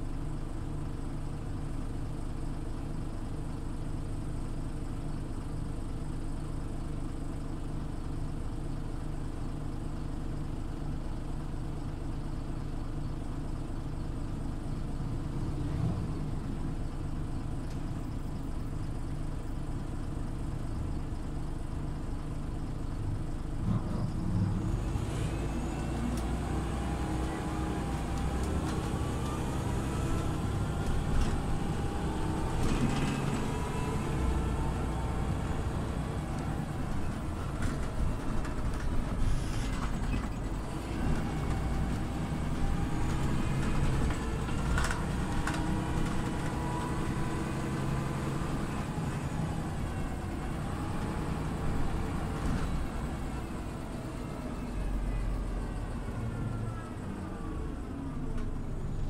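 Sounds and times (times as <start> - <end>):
bus engine whining: 22.3 - 59.0.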